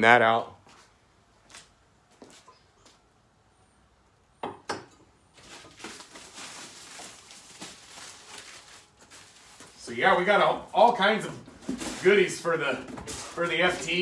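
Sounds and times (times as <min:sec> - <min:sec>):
paper and packaging crinkling: 0:05.4 - 0:14.0.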